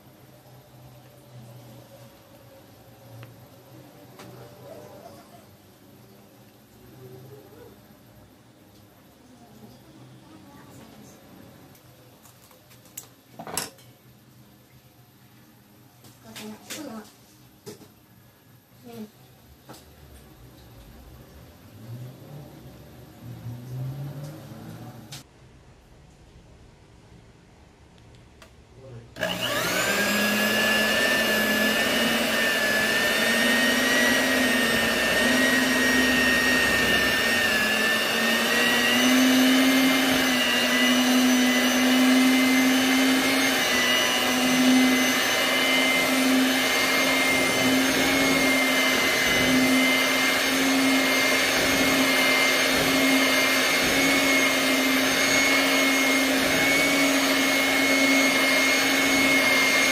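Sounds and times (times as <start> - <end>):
electric mixer whining: 29.2 - 59.9.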